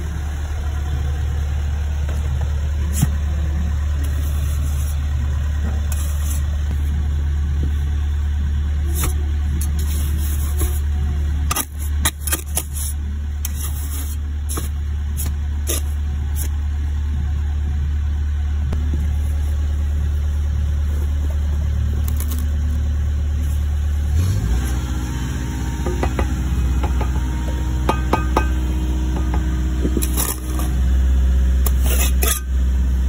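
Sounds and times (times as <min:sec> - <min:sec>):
low engine hum: 0:00.0 - 0:33.0
trowel scraping mortar: 0:05.8 - 0:06.6, 0:08.9 - 0:10.9, 0:11.5 - 0:16.5, 0:29.1 - 0:30.8, 0:31.6 - 0:32.6.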